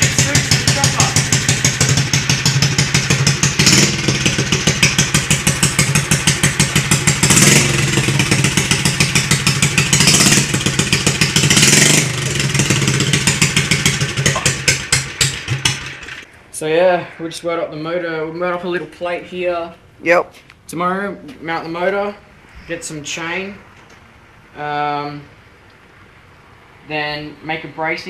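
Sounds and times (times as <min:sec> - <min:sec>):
small engine revving: 0:00.0 - 0:16.2.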